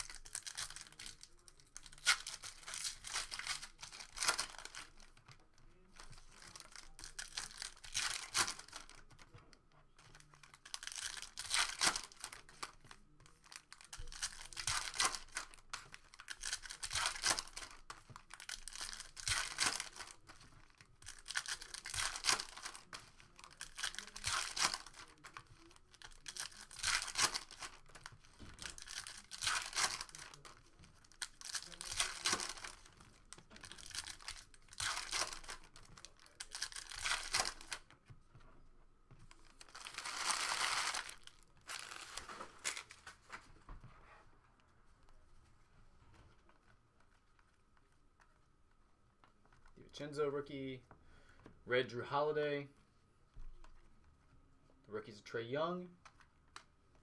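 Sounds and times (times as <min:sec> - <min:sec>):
foil wrappers tearing and crinkling: 0:00.0 - 0:05.2, 0:05.9 - 0:09.2, 0:10.0 - 0:37.9, 0:39.4 - 0:43.4.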